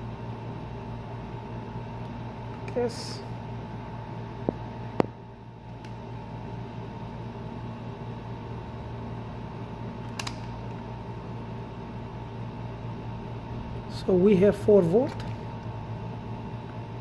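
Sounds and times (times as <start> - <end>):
low hum with fan whir: 0.0 - 17.0
sharp clicks: 10.0 - 10.8.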